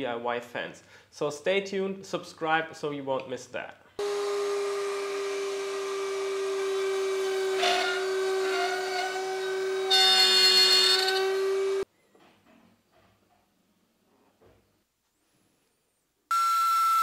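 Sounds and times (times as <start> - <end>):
router bit cutting wood: 4.0 - 11.8
router whining: 4.0 - 11.9.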